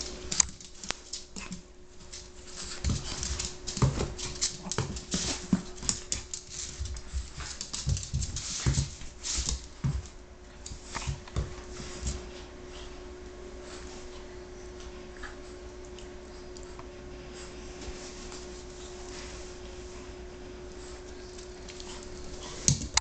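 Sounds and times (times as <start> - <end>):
scuffing and rustling: 0.0 - 12.5
faint steady hum: 0.0 - 23.0.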